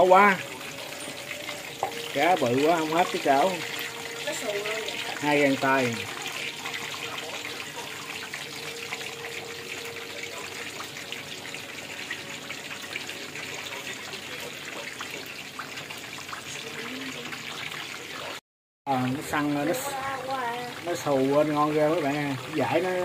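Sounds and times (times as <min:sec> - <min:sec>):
oil popping and crackling: 0:00.0 - 0:18.4
fish deep-frying in hot oil: 0:00.0 - 0:23.0.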